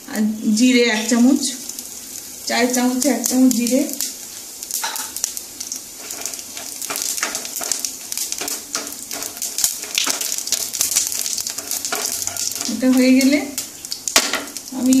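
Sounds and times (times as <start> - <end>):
spices sizzling in hot oil: 0.0 - 15.0
spatula stirring in pan: 1.7 - 14.7.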